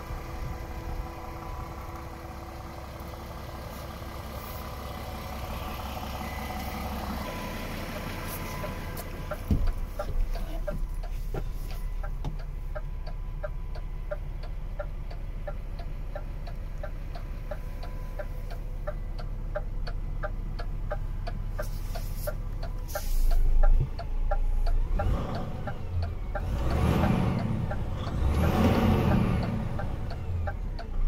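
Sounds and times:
diesel truck engine idling: 0.0 - 31.0
even ticking: 12.0 - 21.6.

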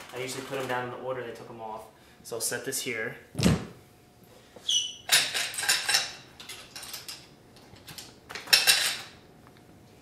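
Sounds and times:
metal parts clinking and rattling: 5.1 - 9.2.

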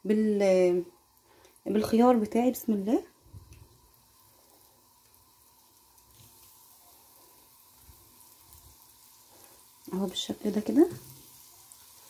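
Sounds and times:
oil sizzling in pan: 0.0 - 12.0.

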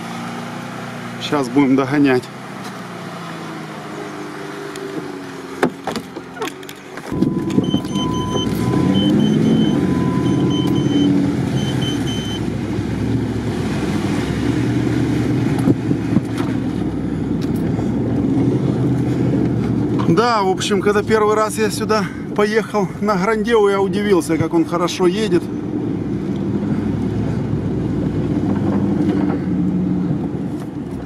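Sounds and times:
car engine running: 0.0 - 31.0
vehicle moving through mud: 0.0 - 31.0
warning chime beeping: 7.1 - 12.5.

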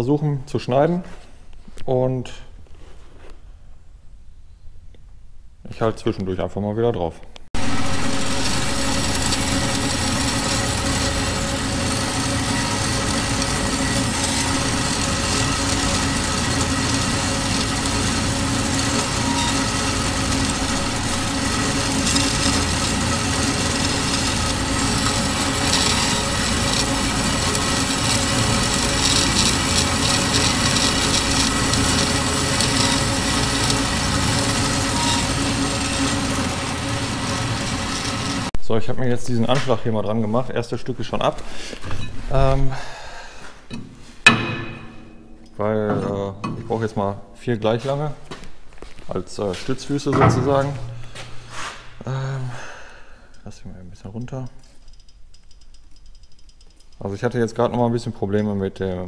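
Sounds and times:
band saw motor hum: 7.6 - 38.5
saw blade cutting steel: 7.6 - 38.5, 43.7 - 46.7.

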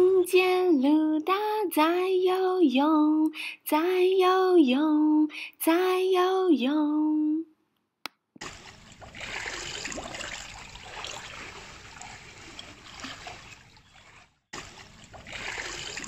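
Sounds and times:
pool water splashing: 8.4 - 16.0.

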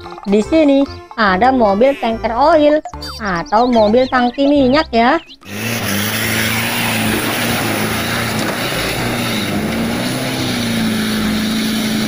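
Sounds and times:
churning mud and water: 3.3 - 12.0
truck engine running under load: 4.7 - 12.0.

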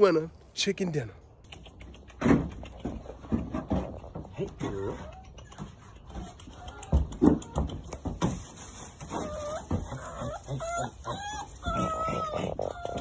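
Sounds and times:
puppy whining: 4.6 - 8.0, 9.0 - 13.0.

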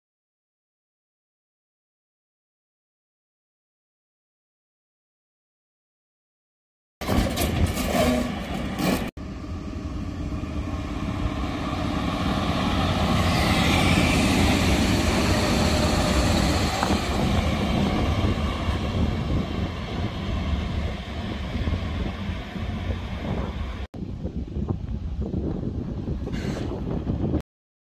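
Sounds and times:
electric locomotive passing: 8.0 - 23.9.

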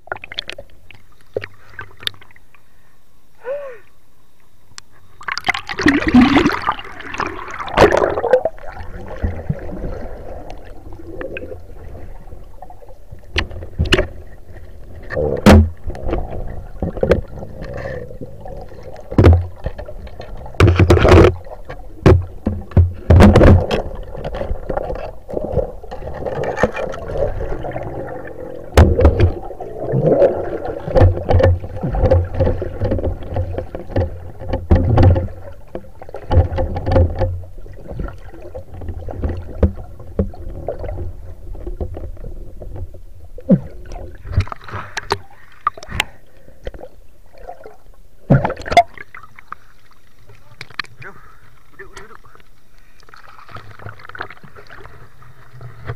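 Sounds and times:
water rushing and gurgling underwater: 0.0 - 2.8, 5.1 - 55.9
sharp knocks and clicks: 20.6 - 24.8, 31.0 - 35.3, 36.2 - 37.5.

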